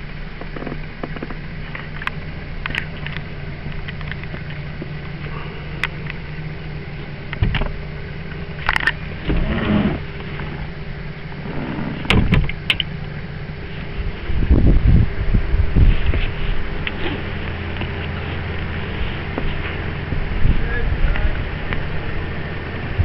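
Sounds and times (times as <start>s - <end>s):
steady low hum: 0.0s - 23.0s
knocks and rustles in boat cabin: 0.4s - 2.0s, 7.4s - 7.8s, 8.8s - 10.7s, 11.5s - 12.9s.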